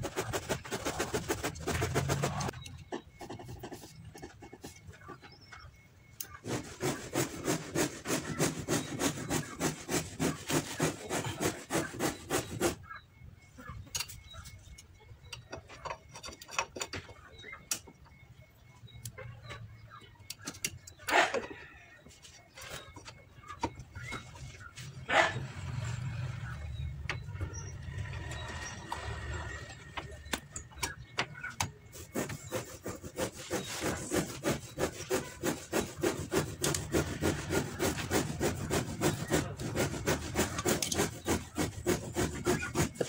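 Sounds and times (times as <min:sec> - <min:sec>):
metal scraping strokes: 0:00.0 - 0:05.1, 0:06.2 - 0:13.0, 0:24.0 - 0:43.0
metal parts clicking and clanking: 0:13.8 - 0:17.9.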